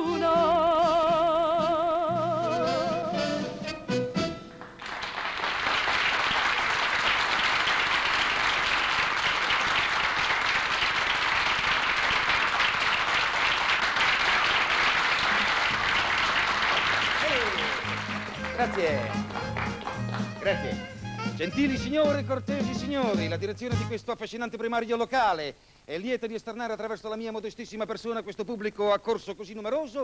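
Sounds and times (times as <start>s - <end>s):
band playing: 0.0s - 4.8s, 17.2s - 24.1s
audience applauding: 4.5s - 20.9s.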